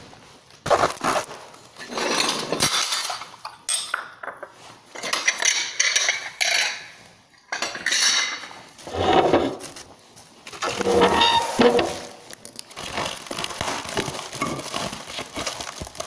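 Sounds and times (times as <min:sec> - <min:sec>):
plates clinking and rattling: 0:01.8 - 0:09.6, 0:10.6 - 0:12.2.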